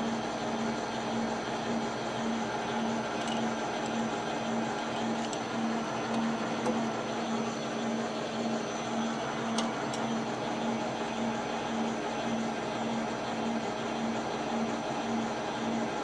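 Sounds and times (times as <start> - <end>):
metal lathe humming: 0.5 - 12.6.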